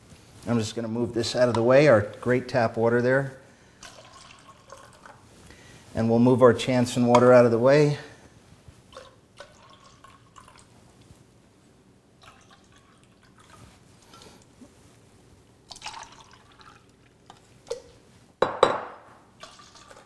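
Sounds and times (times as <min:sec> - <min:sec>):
water trickling into cups: 0:03.8 - 0:05.2, 0:08.9 - 0:10.7, 0:12.2 - 0:13.6, 0:15.7 - 0:17.9, 0:19.4 - 0:20.0
cups clinking: 0:17.3 - 0:20.0.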